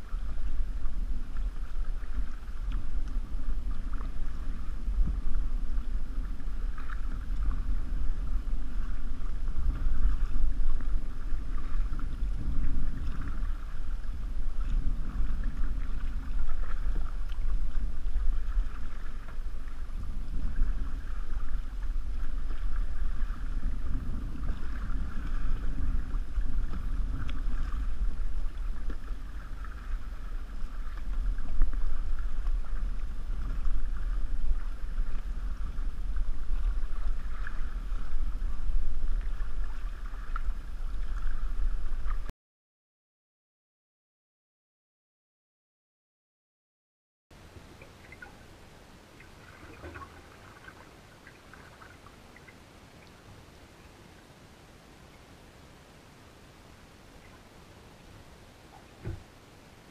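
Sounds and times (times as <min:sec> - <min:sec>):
water lapping along canoe hull: 0:00.0 - 0:42.3, 0:47.4 - 0:59.9
wind rumble on microphone: 0:00.0 - 0:42.3.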